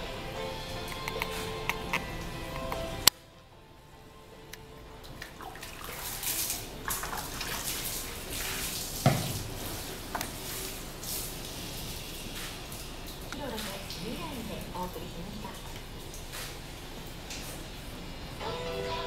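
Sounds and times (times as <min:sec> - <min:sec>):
water splashing on wooden frame: 0:05.1 - 0:17.7.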